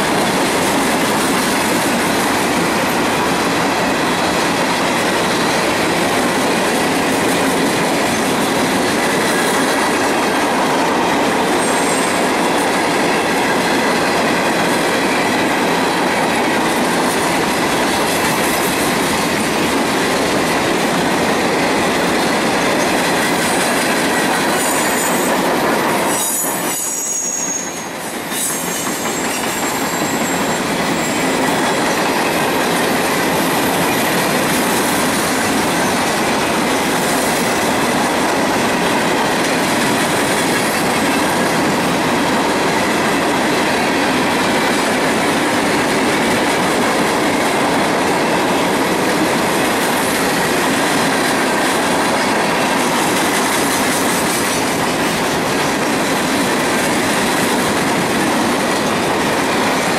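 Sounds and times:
train wheels rumbling on rail: 0:00.0 - 0:59.9
high-pitched wheel squeal: 0:26.1 - 0:31.3.

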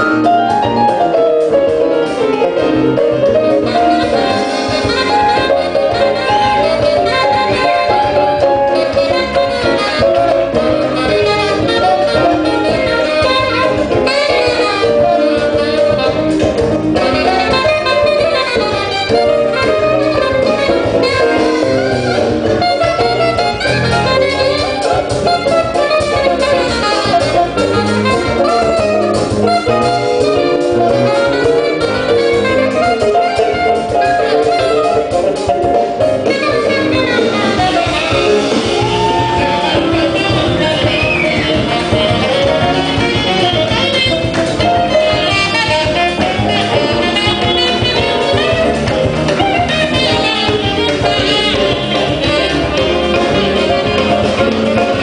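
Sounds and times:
samba band playing live: 0:00.0 - 0:55.0.

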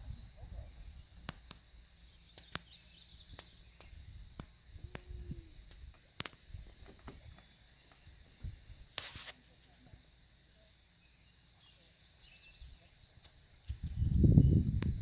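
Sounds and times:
faint bird chirps: 0:00.0 - 0:05.6, 0:06.5 - 0:09.8, 0:10.4 - 0:15.0
faint high hiss: 0:00.0 - 0:15.0
low rumble on microphone: 0:03.9 - 0:05.9, 0:13.7 - 0:15.0
rustling: 0:08.9 - 0:09.4.

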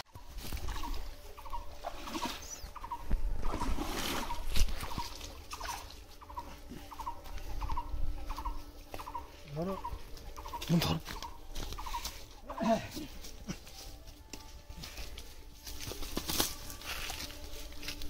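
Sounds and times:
water splashing and sloshing: 0:00.2 - 0:07.4.

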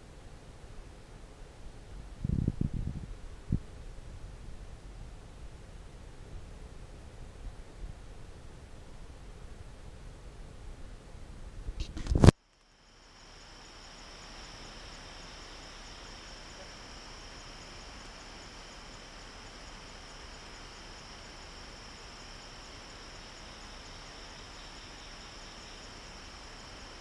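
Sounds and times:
low background hiss: 0:00.0 - 0:27.0
crickets trilling: 0:11.9 - 0:27.0.

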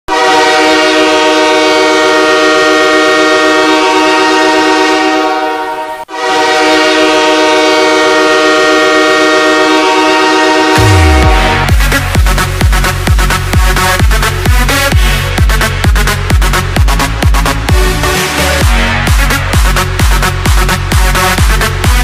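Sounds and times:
goal horn blasts: 0:00.1 - 0:12.1.

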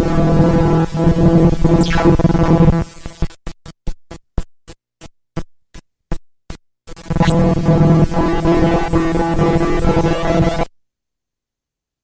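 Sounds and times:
electronic buzzing drone: 0:00.0 - 0:04.2, 0:06.9 - 0:10.7.

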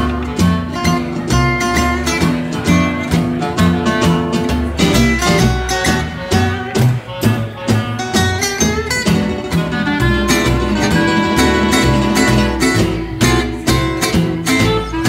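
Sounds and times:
acoustic guitar chopping beat: 0:00.0 - 0:15.0
upright double bass notes: 0:00.0 - 0:15.0
clarinet melody: 0:09.3 - 0:13.4.

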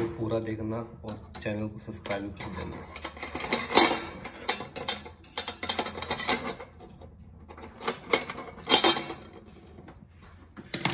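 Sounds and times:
clattering knocks and scraping: 0:01.1 - 0:10.9.

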